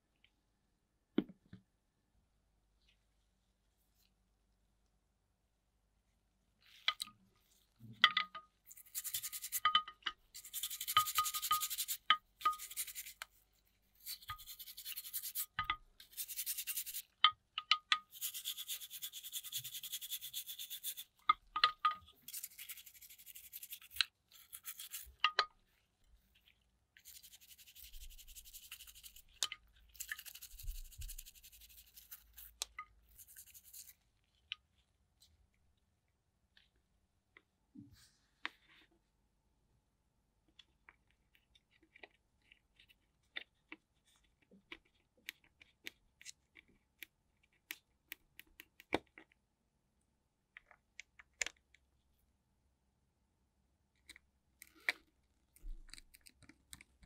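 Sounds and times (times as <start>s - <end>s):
toothbrush scrubbing in soapy water: 8.7s - 13.2s, 13.9s - 17.2s, 18.0s - 21.2s, 22.2s - 25.2s, 27.0s - 34.0s.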